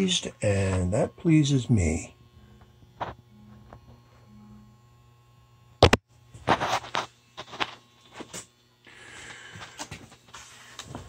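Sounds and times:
low equipment hum: 0.0s - 11.0s
rustling scraping noise: 6.4s - 8.4s.

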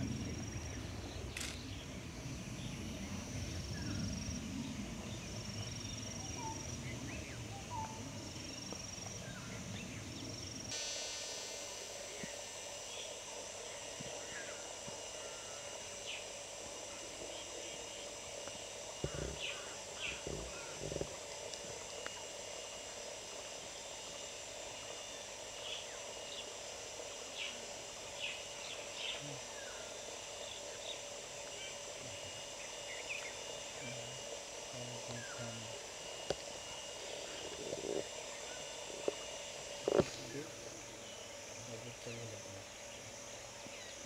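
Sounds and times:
steady hiss: 0.0s - 44.0s.

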